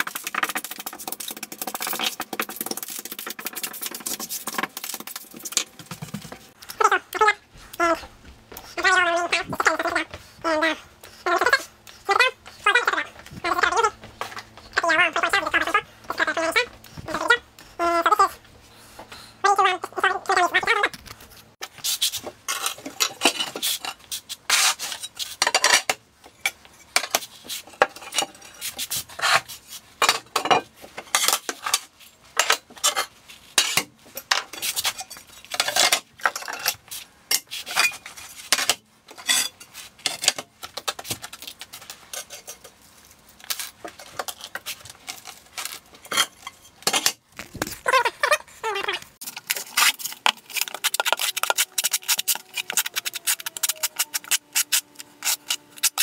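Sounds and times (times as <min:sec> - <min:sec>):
tile work scrapes and clatter: 0:00.0 - 0:06.7, 0:20.8 - 0:56.0.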